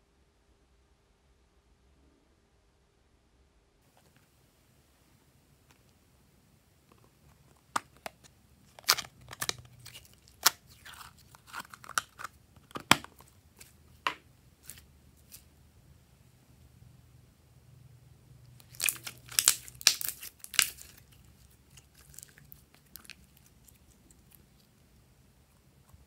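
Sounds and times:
slime popping and crackling: 0:07.7 - 0:13.7, 0:18.6 - 0:24.4.

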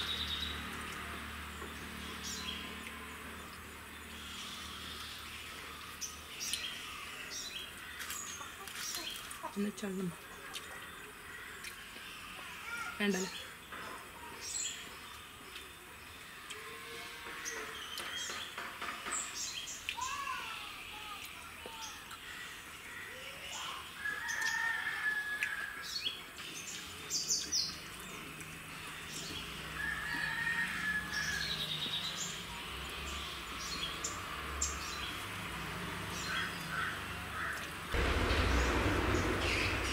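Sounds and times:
small birds chirping: 0:00.0 - 0:39.9
chickens calling: 0:02.6 - 0:13.6
faint low hum: 0:38.0 - 0:39.9.

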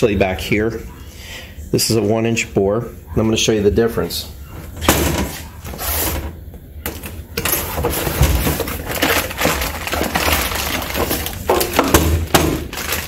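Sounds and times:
plastic bag crinkling: 0:07.0 - 0:13.0.

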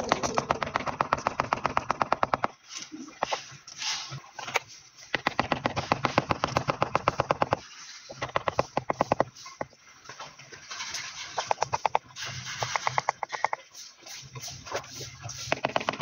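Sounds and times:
rubber mallet tapping tile: 0:00.0 - 0:02.5, 0:05.2 - 0:07.6, 0:08.2 - 0:09.3, 0:11.4 - 0:13.6, 0:15.5 - 0:16.0.

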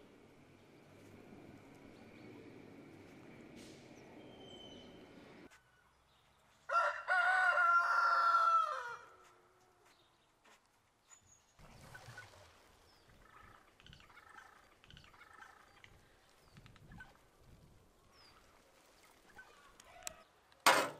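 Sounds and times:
faint outdoor background noise: 0:00.0 - 0:20.9
rooster crowing: 0:06.7 - 0:09.1.

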